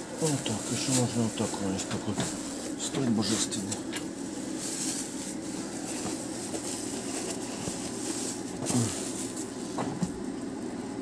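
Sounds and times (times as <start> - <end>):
plastic bag crinkling: 0.0 - 9.8
steady low hum: 0.0 - 11.0.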